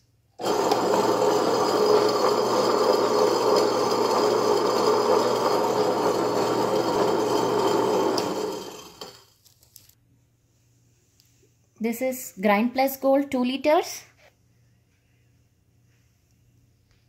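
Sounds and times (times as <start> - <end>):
grinder stones grinding: 0.4 - 9.2.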